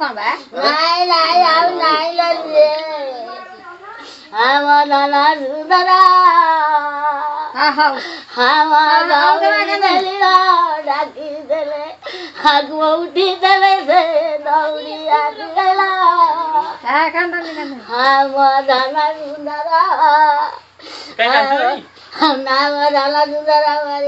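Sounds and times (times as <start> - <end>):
woman wailing a sung lament: 0.1 - 3.4, 4.4 - 24.0.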